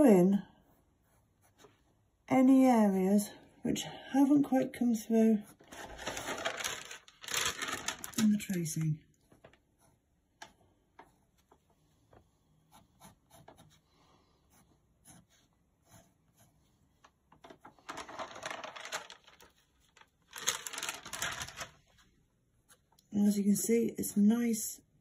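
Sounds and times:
pencil scratching on paper: 0.6s - 1.8s, 12.6s - 16.8s.

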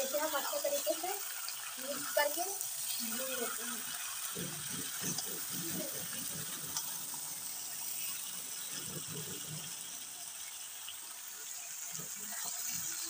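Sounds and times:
chicken and onions sizzling: 0.0s - 13.0s
metal spatula scraping: 2.8s - 8.9s.

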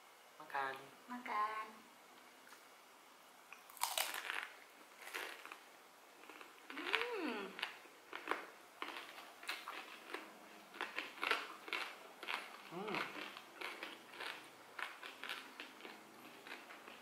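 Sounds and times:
crunchy food chewing: 3.6s - 17.0s
person humming: 6.7s - 7.7s, 12.7s - 13.2s.

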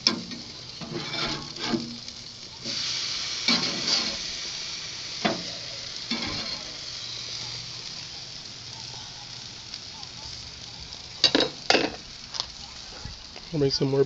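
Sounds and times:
patties sizzling on a grill: 0.0s - 14.0s.

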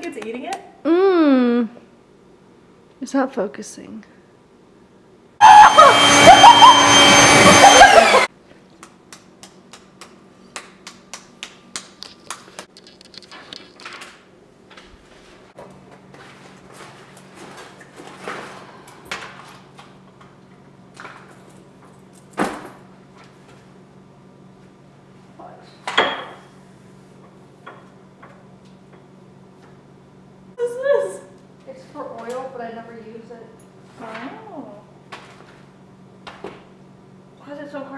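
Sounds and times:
loud harsh blast: 5.4s - 8.2s.

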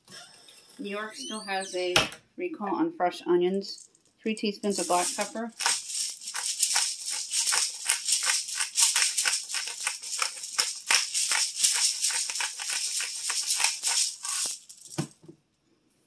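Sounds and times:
pepper shaker rattling: 3.7s - 15.2s.

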